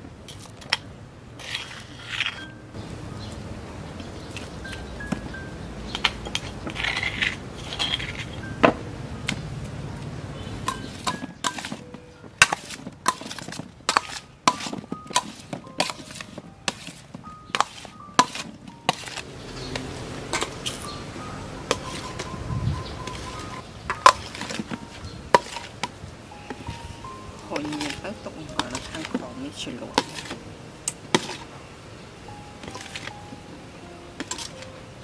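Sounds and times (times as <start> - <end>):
metal spoon clinking on steel tray: 10.7 - 19.2, 20.3 - 21.0, 27.4 - 31.5, 32.6 - 33.1, 34.2 - 34.7.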